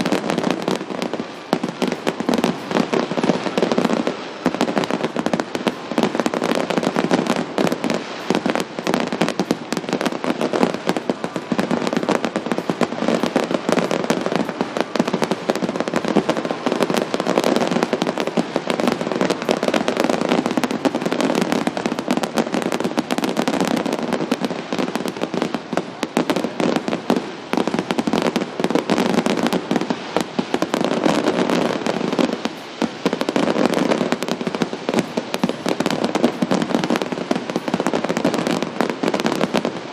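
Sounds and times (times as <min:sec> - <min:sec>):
fireworks banging and crackling: 0:00.0 - 0:39.9.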